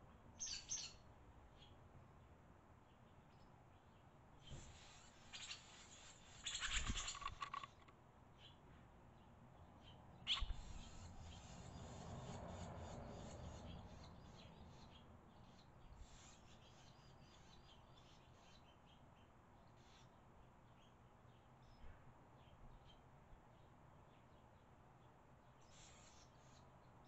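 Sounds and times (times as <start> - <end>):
swallows chirping: 0.4 - 1.8, 3.0 - 7.8, 9.8 - 23.0.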